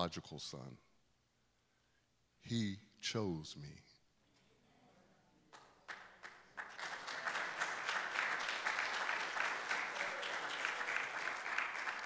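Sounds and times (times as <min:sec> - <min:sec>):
congregation applauding: 0:05.6 - 0:12.0.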